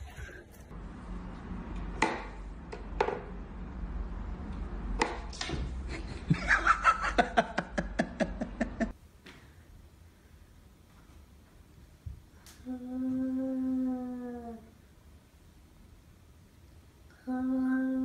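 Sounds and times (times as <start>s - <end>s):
person laughing: 0.0s - 0.6s, 5.9s - 9.0s.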